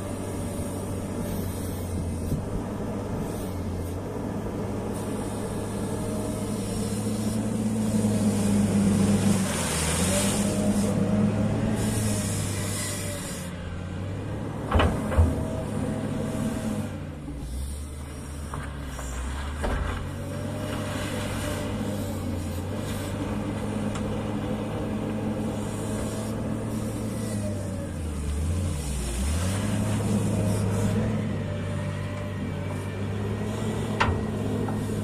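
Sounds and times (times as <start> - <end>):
diesel engine running under load: 0.0 - 35.0
bucket pushing earth and gravel: 8.2 - 11.0.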